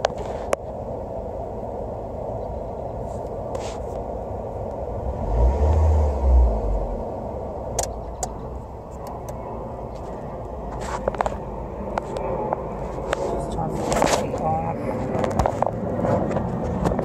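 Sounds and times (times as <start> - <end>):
deep engine rumble: 0.0 - 17.0
car engine idling: 2.1 - 15.1
faint clicks: 7.7 - 9.4.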